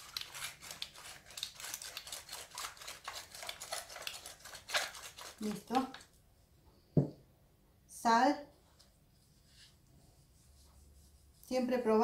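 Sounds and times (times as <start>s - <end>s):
pepper mill grinding: 0.0s - 6.1s.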